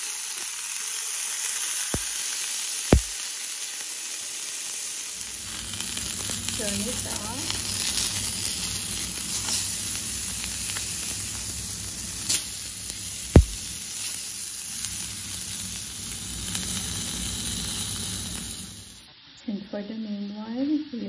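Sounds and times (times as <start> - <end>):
beef sizzling in a pan: 0.0 - 19.3
sharp pop: 2.0 - 2.2, 2.9 - 3.2, 13.3 - 13.7.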